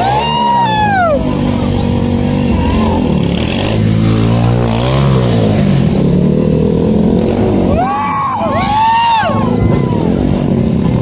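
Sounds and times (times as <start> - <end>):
motorcycle engine revving: 0.0 - 8.1.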